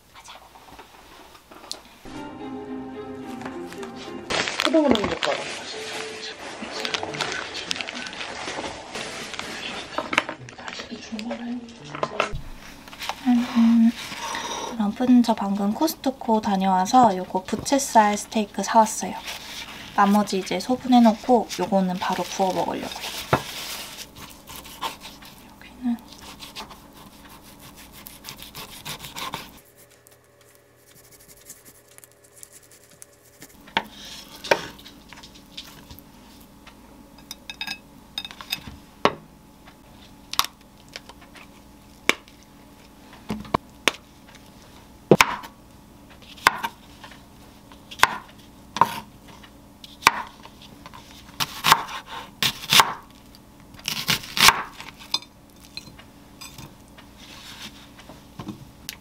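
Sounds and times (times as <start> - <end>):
knife slicing on cutting board: 26.2 - 29.6.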